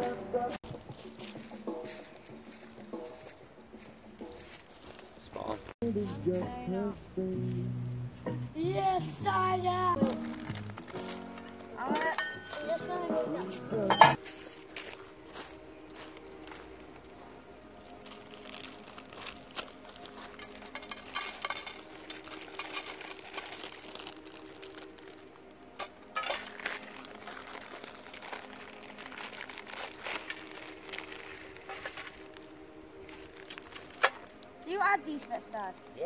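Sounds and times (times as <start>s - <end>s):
crinkling: 10.0s - 13.0s, 14.2s - 36.0s.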